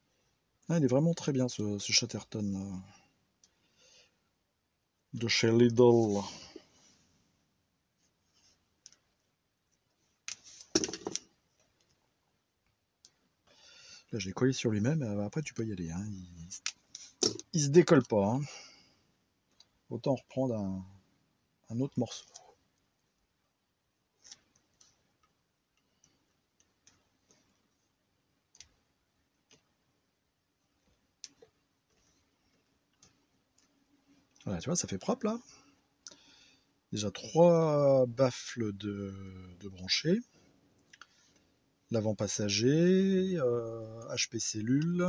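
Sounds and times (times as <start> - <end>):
faint clicks of hands handling wires: 8.8 - 12.0, 19.4 - 19.8, 24.2 - 27.8, 28.5 - 29.8, 30.7 - 34.5, 40.7 - 41.5.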